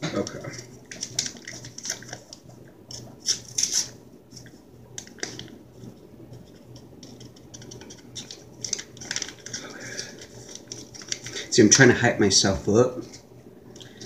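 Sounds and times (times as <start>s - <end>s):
low steady hum: 0.0s - 14.0s
foil packet crinkling and tearing: 0.2s - 4.0s, 7.0s - 11.8s.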